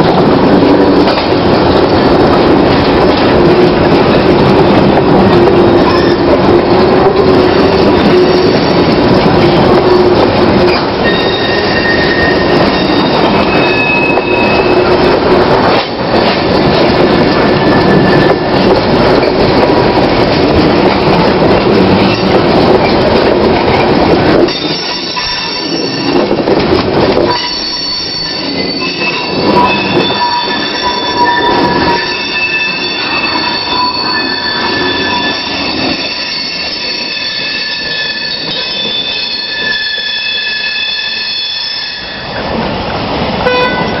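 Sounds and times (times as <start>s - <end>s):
train wheels rumbling: 0.0s - 44.0s
train wheels squealing: 11.0s - 14.9s, 17.5s - 18.5s, 24.5s - 26.2s, 27.3s - 42.3s.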